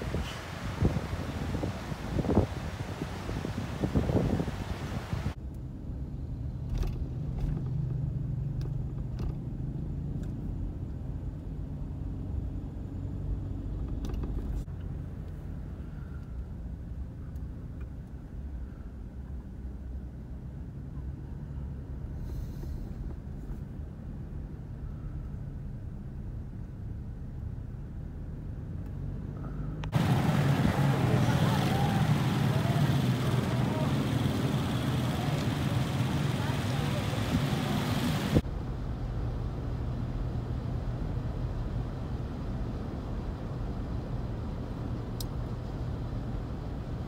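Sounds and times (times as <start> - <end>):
wind buffeting microphone: 0.0 - 5.4, 29.9 - 38.4
car driving hum: 0.0 - 47.0.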